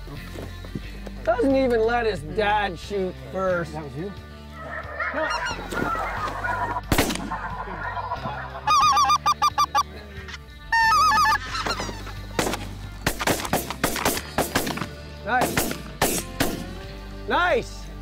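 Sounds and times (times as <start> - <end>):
geese yelping calls: 4.4 - 12.4
shotgun bangs: 6.9 - 7.3, 12.4 - 16.7.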